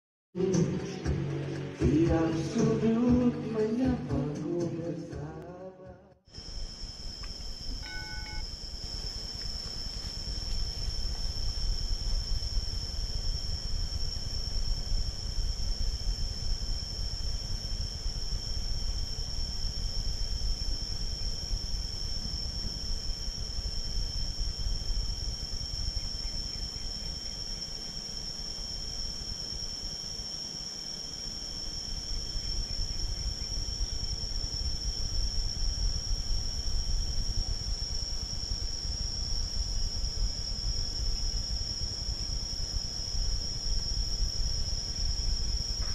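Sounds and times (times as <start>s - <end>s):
high-pitched insect drone: 6.3s - 45.9s.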